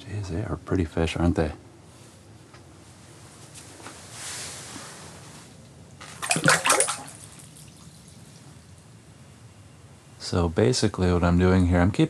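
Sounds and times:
soft hiss: 0:00.0 - 0:11.8
fish splashing in water: 0:06.0 - 0:08.3.

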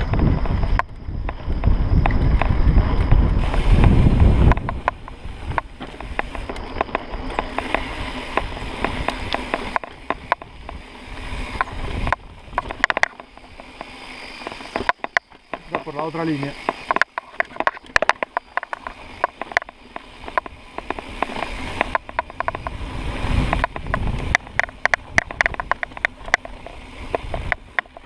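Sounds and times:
bike rattles and clicks: 0:00.0 - 0:28.0
mountain bike rumbling on dirt: 0:00.0 - 0:28.0.

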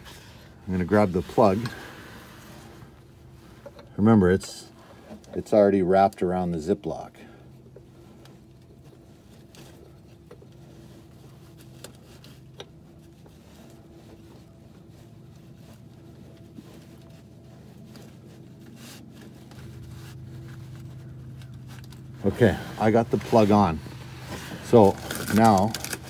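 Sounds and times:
handling clicks and rustles: 0:00.0 - 0:26.0
steady low hum: 0:00.0 - 0:26.0.

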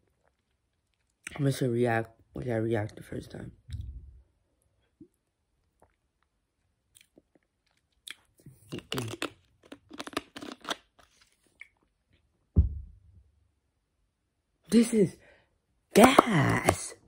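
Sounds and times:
dull thump: 0:12.5 - 0:13.2.

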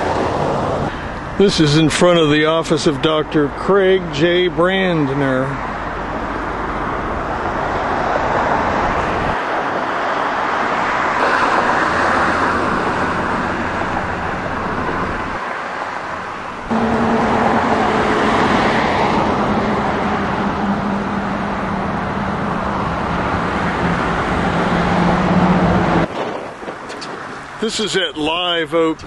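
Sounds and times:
cars passing: 0:00.0 - 0:29.0
steady low hum: 0:16.2 - 0:26.1.

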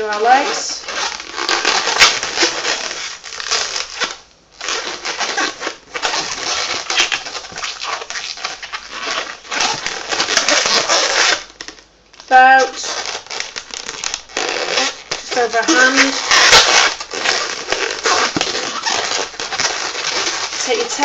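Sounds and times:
balloon squeaking and creaking: 0:00.0 - 0:21.0.

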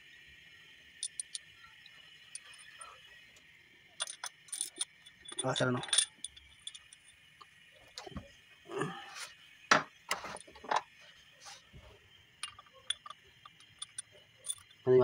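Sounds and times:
metal tools clinking on engine: 0:01.0 - 0:01.4, 0:04.0 - 0:07.2, 0:12.4 - 0:15.0.

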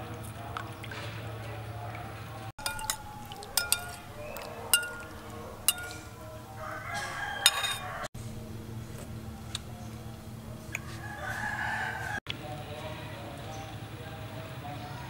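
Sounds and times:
metal spoon clinking on bowl: 0:02.6 - 0:06.2, 0:07.4 - 0:08.0
rooster crowing: 0:06.3 - 0:08.1, 0:10.8 - 0:12.2.

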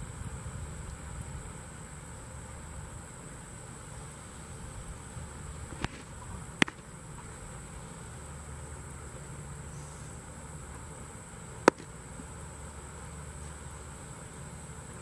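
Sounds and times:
insects droning: 0:00.0 - 0:15.0
low outdoor rumble: 0:00.0 - 0:15.0
baseball hitting target: 0:05.7 - 0:07.0, 0:11.6 - 0:12.0.

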